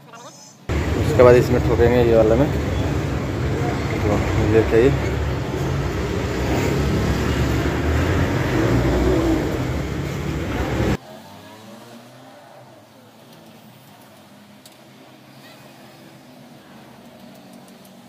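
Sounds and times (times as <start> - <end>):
engine running: 0.7 - 11.0.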